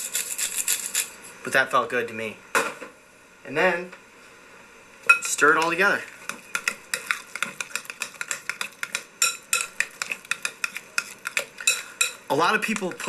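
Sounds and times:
utensil scraping glass bowl: 0.0 - 1.2, 5.2 - 13.0.

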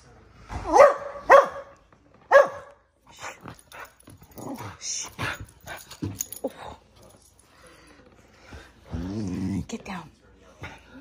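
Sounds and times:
dog barking: 0.6 - 2.8.

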